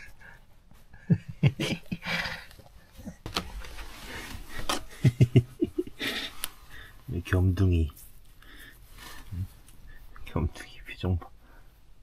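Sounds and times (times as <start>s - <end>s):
man chuckling softly: 0.9s - 3.2s, 4.8s - 6.4s.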